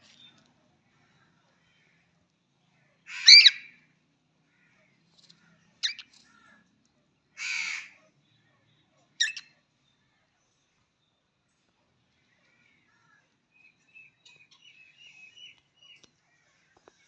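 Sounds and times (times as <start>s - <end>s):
cockatiel calling: 3.1s - 3.7s.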